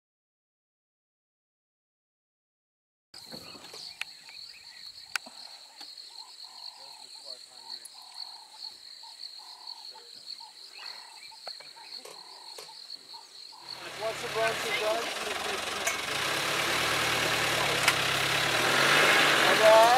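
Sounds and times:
frogs calling: 3.2 - 15.9
insect trill: 3.2 - 18.4.

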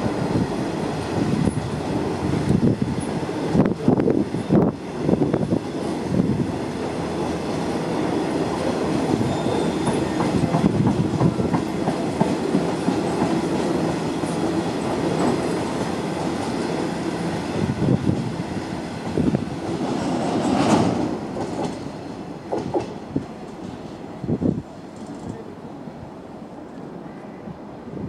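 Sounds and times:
train wheels clattering over rail joints: 8.6 - 16.6, 19.0 - 23.9.

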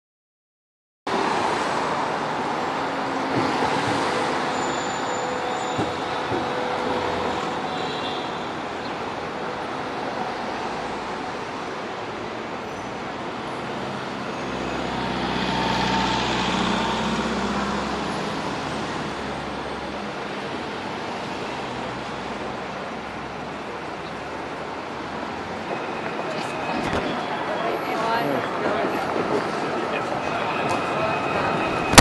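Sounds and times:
passing vehicles: 1.1 - 32.0
heavy vehicle rumbling by: 13.6 - 20.1.

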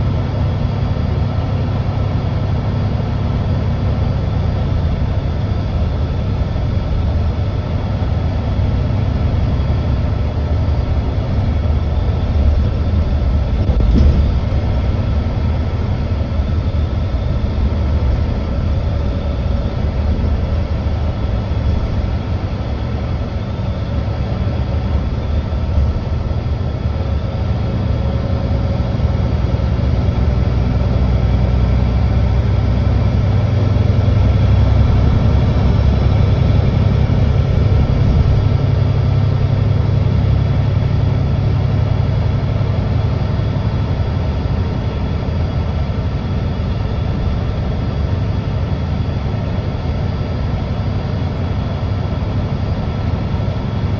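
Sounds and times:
bus engine rumble: 0.0 - 53.9
faint steady whines: 0.0 - 53.9.

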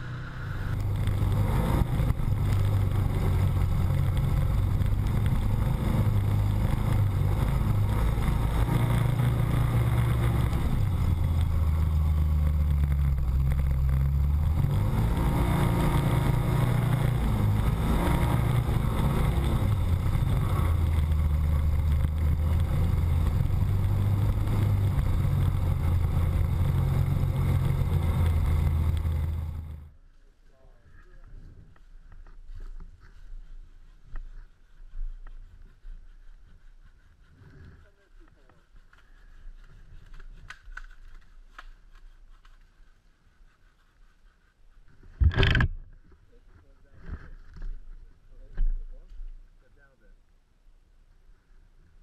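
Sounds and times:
rattle and rolling noise: 0.0 - 30.0, 31.2 - 49.0
vehicle engine running: 0.0 - 30.0.

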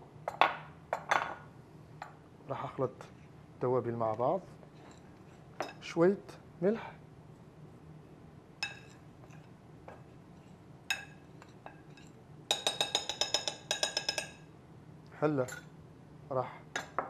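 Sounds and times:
teaspoon clinking against glass dish: 8.6 - 9.5, 10.9 - 14.5.

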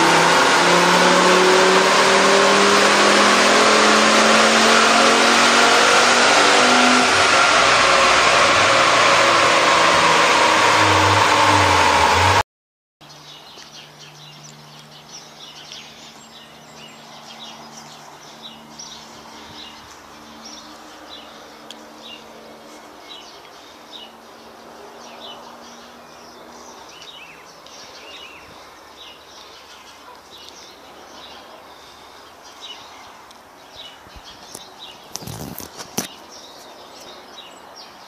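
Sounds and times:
small birds chirping: 13.0 - 38.0.

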